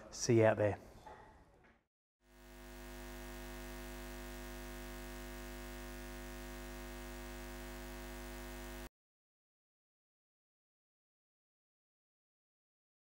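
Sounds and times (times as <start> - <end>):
low electronic drone: 2.3 - 8.9.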